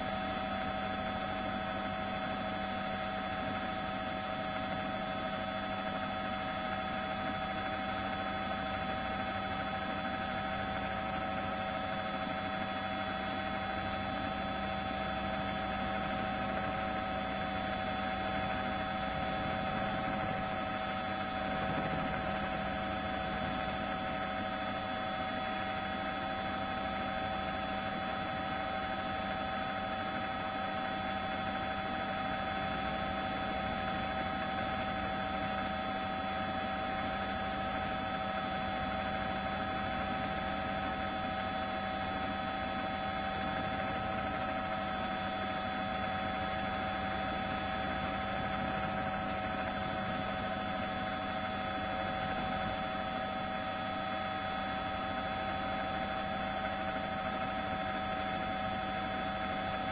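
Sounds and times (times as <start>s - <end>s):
helicopter drone from on board: 0.0s - 59.9s.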